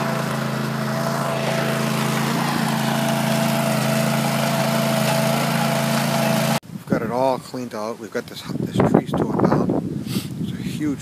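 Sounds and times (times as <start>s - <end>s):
trencher engine humming: 0.0s - 6.6s.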